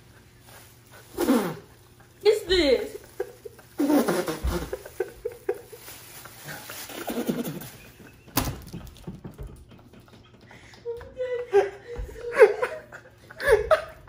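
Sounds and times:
man laughing hard: 0:03.0 - 0:08.4, 0:09.9 - 0:14.0.

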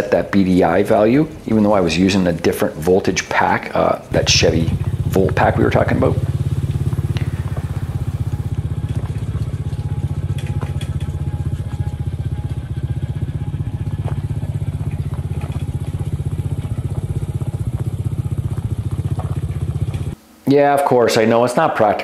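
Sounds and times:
vehicle engine drone: 0:00.0 - 0:20.2
gravel clicks and crunches: 0:06.1 - 0:11.8, 0:13.7 - 0:20.2.

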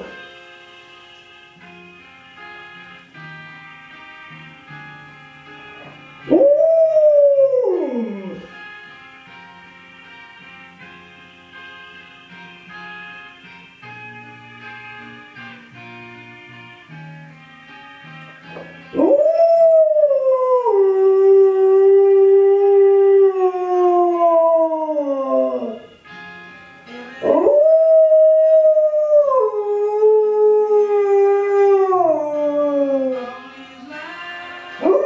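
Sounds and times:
dog howling: 0:06.3 - 0:08.5, 0:19.0 - 0:25.8, 0:27.2 - 0:33.4
faint song: 0:13.9 - 0:35.0.

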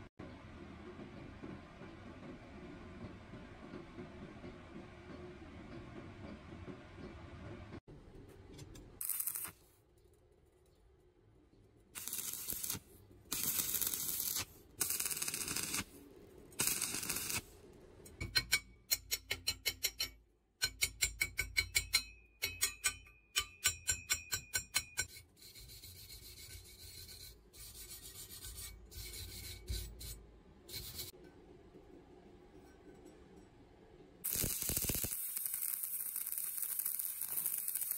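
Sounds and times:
welding arc crackling: 0:09.0 - 0:09.6, 0:12.0 - 0:16.0, 0:16.6 - 0:17.5, 0:34.2 - 0:37.9.

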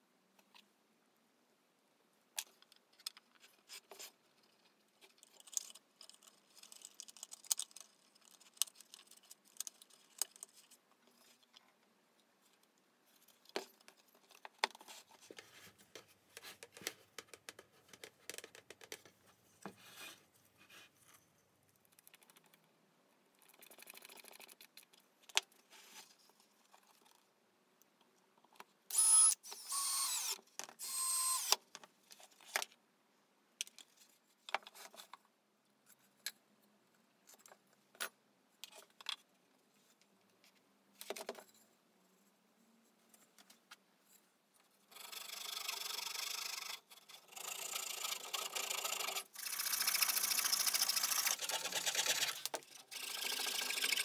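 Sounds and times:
cordless drill driving screws: 0:28.9 - 0:31.6.

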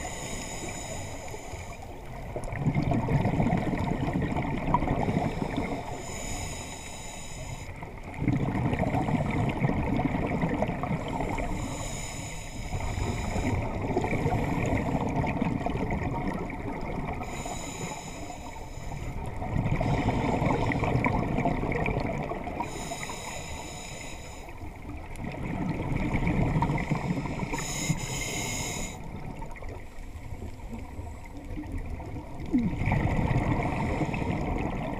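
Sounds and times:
regulator inhale hiss: 0:00.0 - 0:02.0, 0:05.1 - 0:07.8, 0:11.1 - 0:15.0, 0:17.2 - 0:19.2, 0:22.6 - 0:24.8, 0:27.0 - 0:29.1
bubbling exhale underwater: 0:02.4 - 0:05.9, 0:08.1 - 0:11.6, 0:12.8 - 0:17.4, 0:19.4 - 0:22.8, 0:25.2 - 0:27.8, 0:30.8 - 0:34.9.

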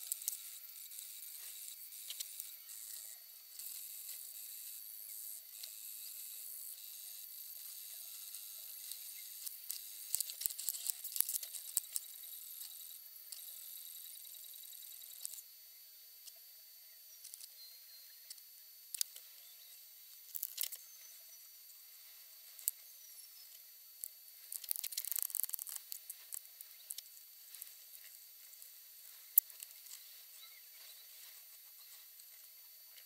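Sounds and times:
parts and tools clicking and crackling: 0:08.7 - 0:13.6, 0:17.2 - 0:17.6, 0:18.3 - 0:19.3, 0:20.1 - 0:20.9, 0:22.4 - 0:22.9, 0:23.5 - 0:33.0.

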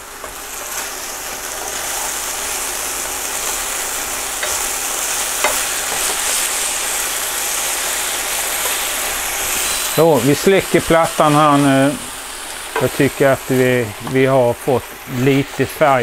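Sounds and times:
chicken sizzling in frying pan: 0:00.0 - 0:16.0
tongs clicking against pan: 0:04.4 - 0:06.5.

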